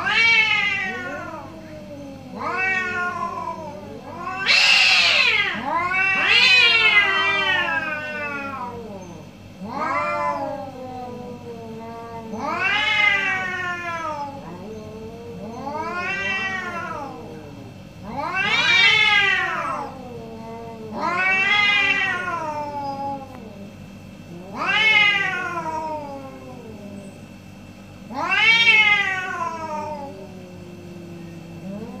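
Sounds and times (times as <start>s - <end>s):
cat low moan: 0.0s - 27.3s, 28.0s - 32.0s
cats caterwauling: 0.0s - 32.0s.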